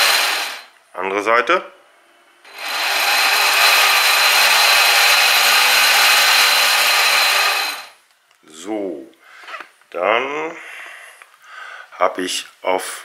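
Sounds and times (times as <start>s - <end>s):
electric motor whirring: 0.0s - 0.7s, 2.5s - 8.0s.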